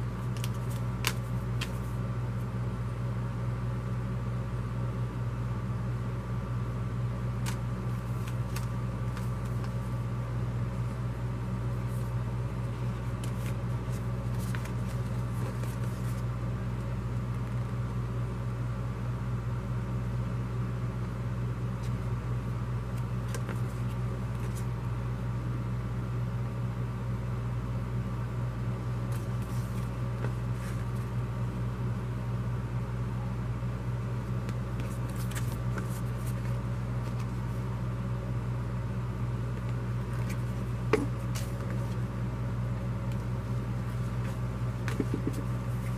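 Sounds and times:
paper rustling and tapping: 0:00.2 - 0:01.9, 0:07.4 - 0:09.9, 0:13.0 - 0:16.2, 0:23.2 - 0:24.6, 0:34.4 - 0:37.4, 0:39.6 - 0:42.0, 0:44.2 - 0:45.9.

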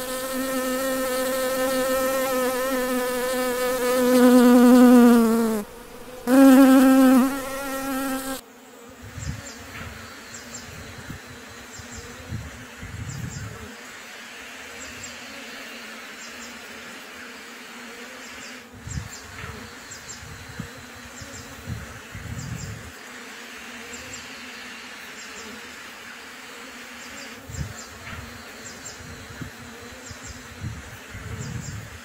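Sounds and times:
bees buzzing: 0:00.0 - 0:10.2.

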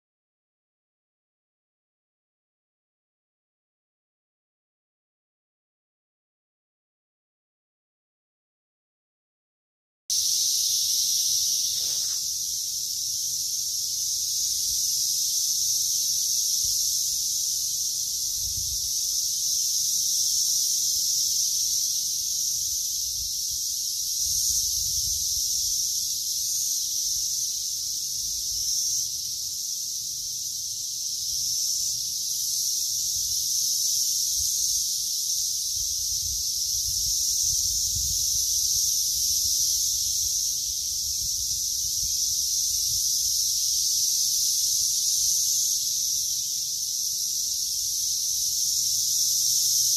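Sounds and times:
cicadas droning: 0:10.1 - 0:49.9.

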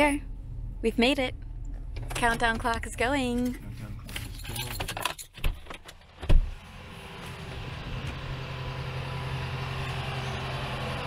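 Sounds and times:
vehicle engine humming: 0:00.0 - 0:04.3, 0:06.0 - 0:11.0
car door shutting: 0:05.4 - 0:06.6.

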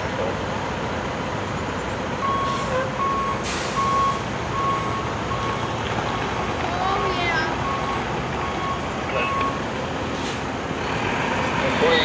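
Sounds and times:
short hisses: 0:03.4 - 0:03.9, 0:10.1 - 0:10.5
electronic beeps: 0:07.6 - 0:09.6.

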